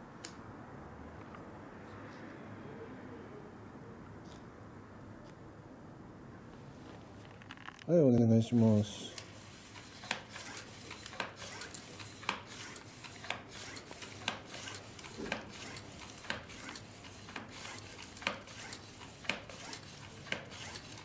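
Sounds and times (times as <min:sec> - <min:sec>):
bicycle pump hissing strokes: 0:08.9 - 0:21.0.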